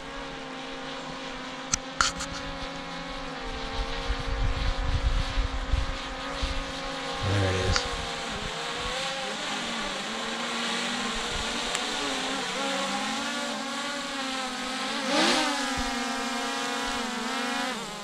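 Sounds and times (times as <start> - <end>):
drone propellers whining: 7.2 - 14.4.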